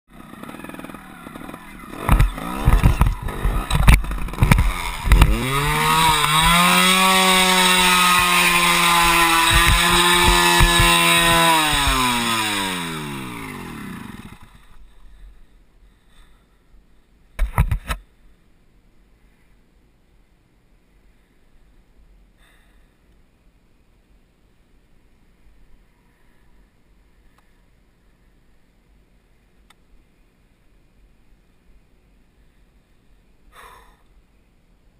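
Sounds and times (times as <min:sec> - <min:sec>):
two-stroke motorcycle engine revving: 0:00.1 - 0:14.6.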